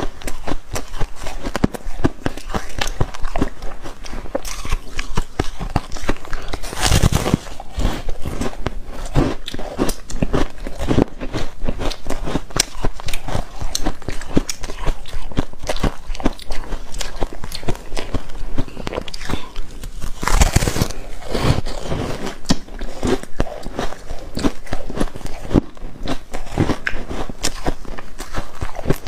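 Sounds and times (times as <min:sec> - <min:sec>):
ice crunching: 0:04.4 - 0:09.3, 0:19.2 - 0:25.5.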